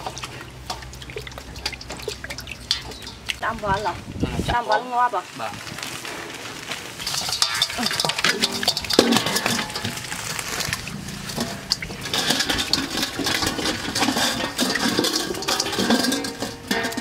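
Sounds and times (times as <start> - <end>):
eels slapping and splashing: 0.0 - 3.9, 5.8 - 17.0.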